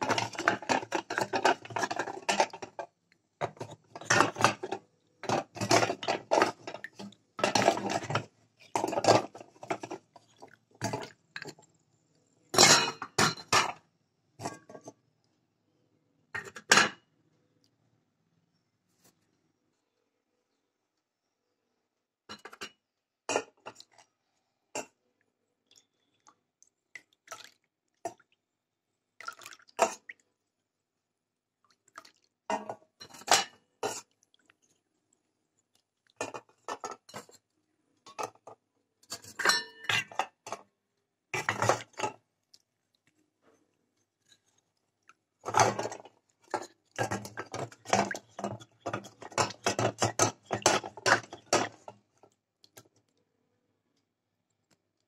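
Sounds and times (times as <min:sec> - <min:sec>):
clay pots clinking against steel bowl: 0:00.0 - 0:10.1, 0:12.6 - 0:13.8, 0:22.3 - 0:24.0, 0:36.2 - 0:37.4, 0:38.1 - 0:40.6, 0:41.4 - 0:42.2, 0:45.4 - 0:51.9
water dripping and splashing: 0:05.4 - 0:11.7, 0:25.6 - 0:28.5, 0:29.2 - 0:30.5, 0:31.6 - 0:37.4, 0:44.1 - 0:53.1.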